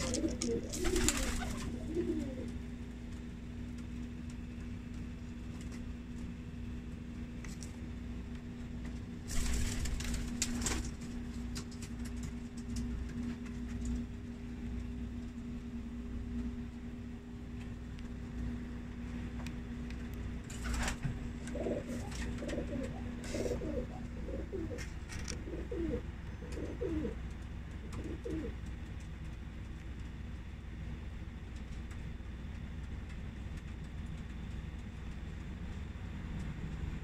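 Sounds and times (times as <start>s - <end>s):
pigeons cooing: 0.0s - 2.8s, 20.6s - 27.2s, 27.8s - 28.6s
steady low hum: 0.0s - 37.0s.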